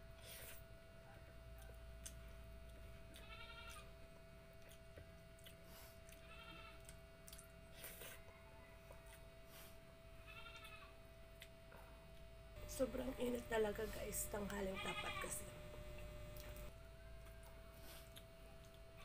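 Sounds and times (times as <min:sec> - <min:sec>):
steady low hum: 0:00.0 - 0:19.0
person chewing: 0:01.6 - 0:03.8, 0:04.5 - 0:09.7, 0:16.4 - 0:18.8.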